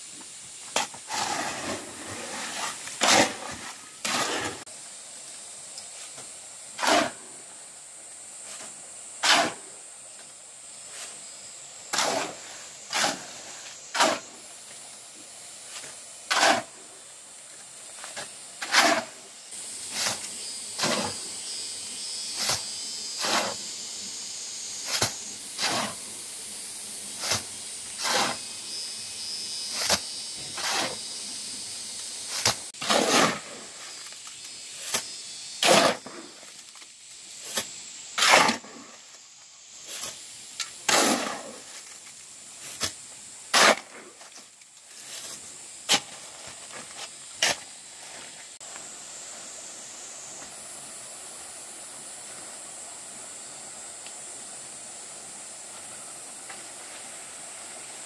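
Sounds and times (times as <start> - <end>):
steady high hiss: 0.0 - 58.0
hand tools scraping sand: 0.7 - 4.7, 6.0 - 7.3, 8.4 - 9.7, 11.9 - 14.5, 15.6 - 16.8, 17.6 - 21.4, 22.3 - 23.7, 24.8 - 26.2, 27.1 - 28.6, 29.6 - 31.1, 32.2 - 36.7, 37.3 - 39.0, 39.8 - 48.5.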